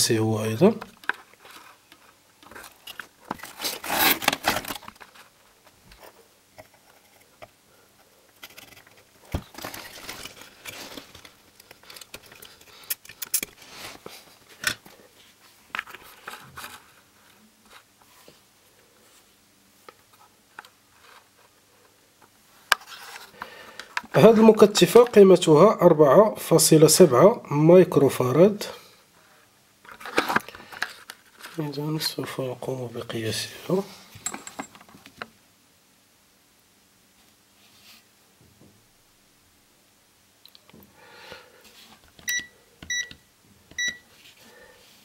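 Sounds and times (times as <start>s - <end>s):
circuit board scraping and rustling: 1.0s - 7.4s, 8.3s - 14.7s, 29.9s - 31.7s.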